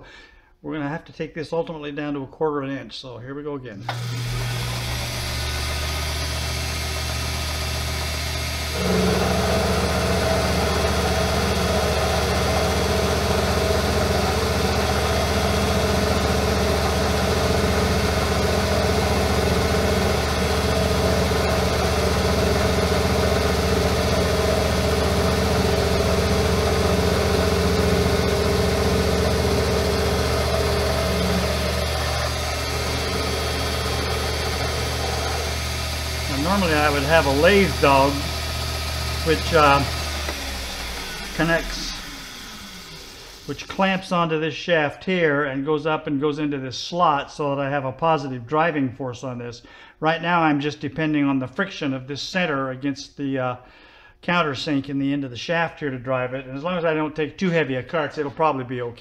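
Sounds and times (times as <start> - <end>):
metal lathe humming: 3.8 - 43.8
lathe whine: 3.8 - 43.9.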